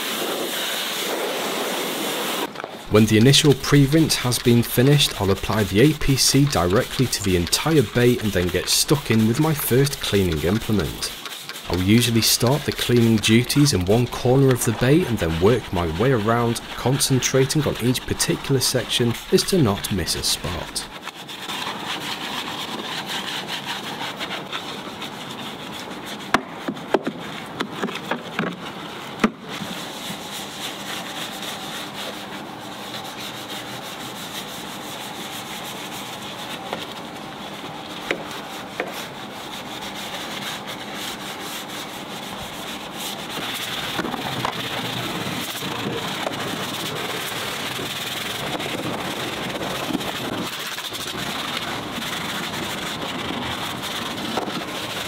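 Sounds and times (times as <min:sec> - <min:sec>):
brush scrubbing wet parts: 0:02.8 - 0:55.0
brush clicking against parts: 0:03.0 - 0:21.0.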